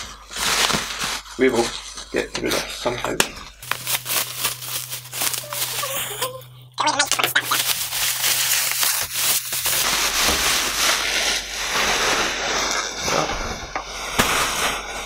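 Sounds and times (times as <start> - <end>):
bubble wrap crinkling: 0.0 - 15.0.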